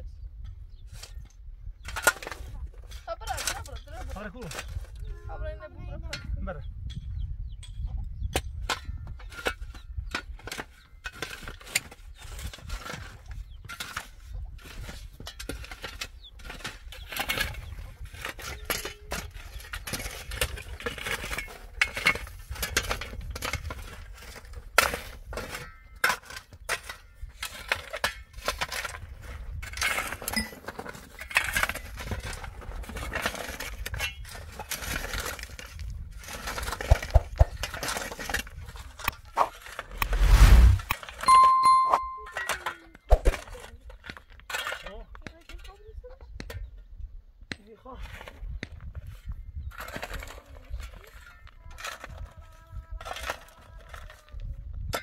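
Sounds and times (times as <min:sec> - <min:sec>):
shovel scraping stony dirt: 0:09.2 - 0:43.6
loud low rumble: 0:40.0 - 0:40.9.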